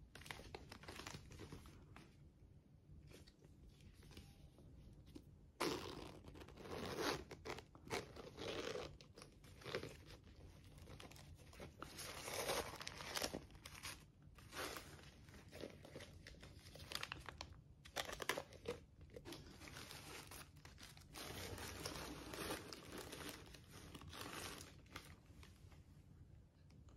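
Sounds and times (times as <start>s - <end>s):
plastic and tissue paper crinkling: 0.0s - 2.2s, 6.2s - 25.8s.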